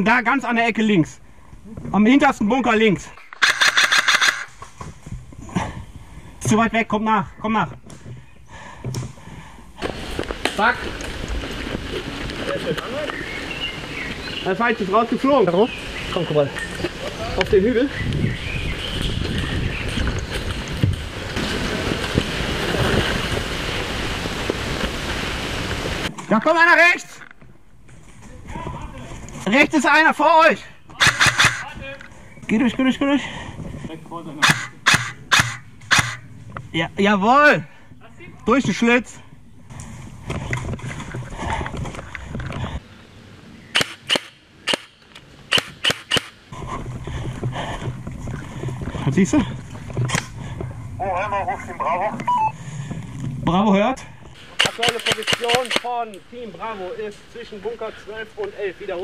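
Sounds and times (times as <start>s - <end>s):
airsoft rifle shots: 3.2s - 4.6s, 31.0s - 31.7s, 34.4s - 36.2s, 43.7s - 46.4s, 54.4s - 56.0s
rumbling microphone noise: 4.5s - 26.2s, 46.4s - 54.6s
footfalls on leaf litter: 9.8s - 14.4s, 19.8s - 26.1s
rustling dry leaves: 9.8s - 26.1s, 54.4s - 59.0s
sharp knocks: 34.4s - 36.2s.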